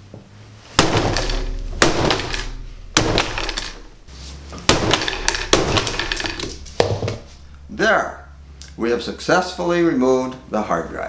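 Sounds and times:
sharp bangs with rattling clatter: 0:00.8 - 0:08.6.

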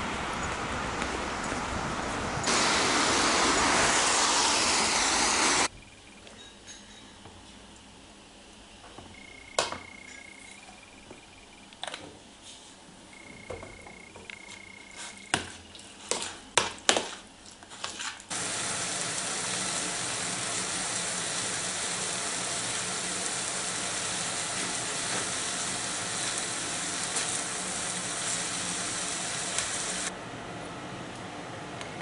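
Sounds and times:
thin high steady tone: 0:09.1 - 0:11.7
meat sizzling in a frying pan: 0:18.3 - 0:30.1.

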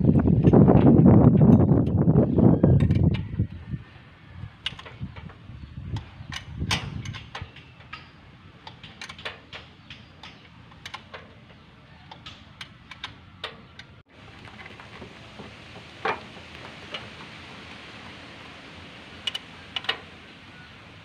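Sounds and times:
metallic clicks and taps: 0:06.0 - 0:14.0
steady hiss: 0:14.0 - 0:21.0.

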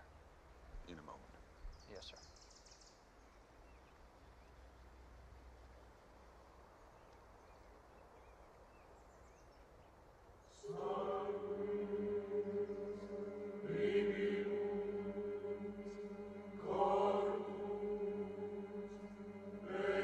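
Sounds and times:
bird chirps: 0:01.4 - 0:04.9
choir chanting low chords: 0:10.4 - 0:20.0.

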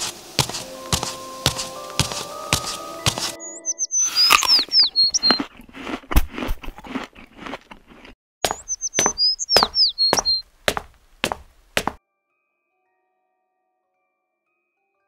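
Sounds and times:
footsteps on paved path: 0:00.0 - 0:03.4, 0:04.8 - 0:12.0
high chirps: 0:00.8 - 0:05.5, 0:08.4 - 0:10.5.

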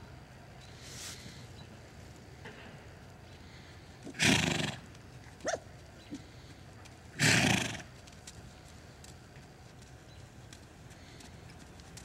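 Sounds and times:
horse snorting: 0:04.1 - 0:04.9, 0:07.2 - 0:07.9.

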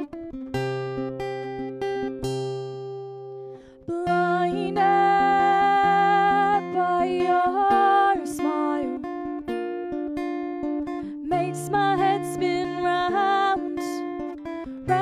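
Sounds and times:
acoustic guitar strummed: 0:00.0 - 0:15.0
woman singing long notes: 0:03.9 - 0:09.0, 0:11.2 - 0:14.0.

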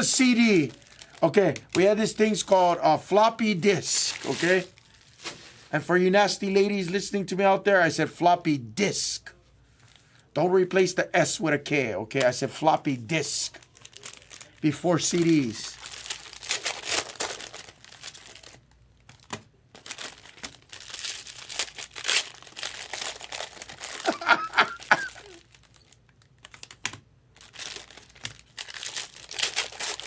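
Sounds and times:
wrappers crinkling and tearing: 0:00.0 - 0:02.6, 0:03.7 - 0:05.9, 0:13.2 - 0:30.0.

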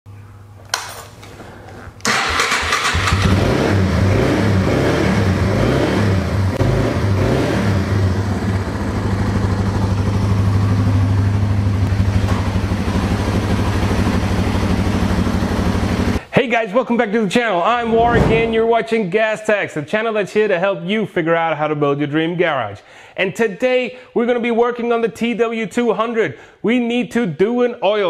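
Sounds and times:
motorcycle engine starting and idling: 0:02.0 - 0:16.2.

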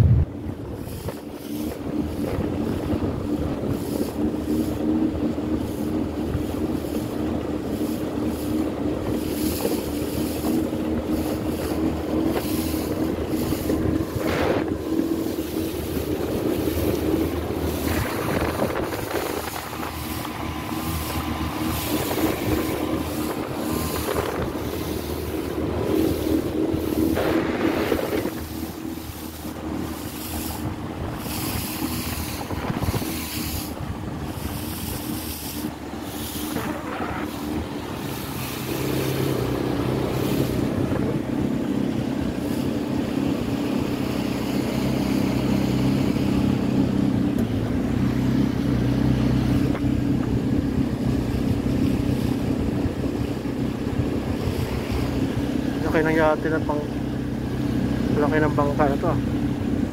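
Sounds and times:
boat engine running: 0:00.0 - 0:59.9
wind buffeting microphone: 0:00.0 - 0:59.9.

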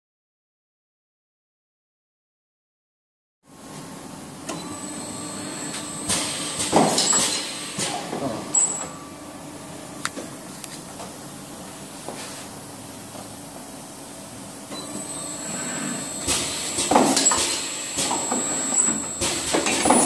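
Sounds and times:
machine humming: 0:12.6 - 0:20.0.

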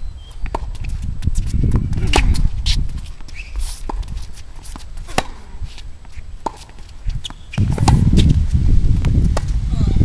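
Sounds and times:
tennis ball bouncing on hard court: 0:00.4 - 0:02.5, 0:03.8 - 0:05.8, 0:06.4 - 0:08.3
tennis ball struck by rackets: 0:01.8 - 0:02.5, 0:03.8 - 0:05.6, 0:06.4 - 0:08.3.

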